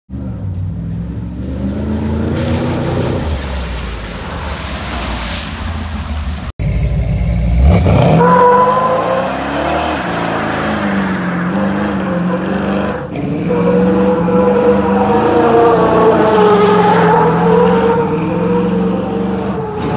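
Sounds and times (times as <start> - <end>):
pickup engine pulling through mud: 0.2 - 19.9
water and mud splashing: 1.5 - 7.0
pickup engine revving: 5.6 - 19.9
tires squealing: 7.6 - 19.9.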